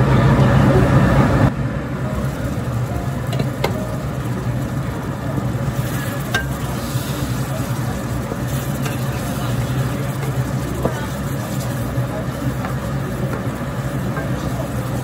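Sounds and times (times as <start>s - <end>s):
steady low hum: 0.0s - 15.0s
meat sizzling in sauce: 2.0s - 15.0s
spatula knocking on pan: 12.5s - 14.5s.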